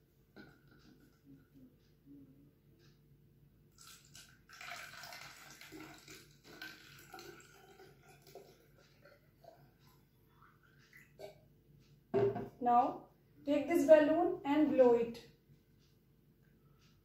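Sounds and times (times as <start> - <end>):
water pouring into plastic bottle: 3.8 - 8.8.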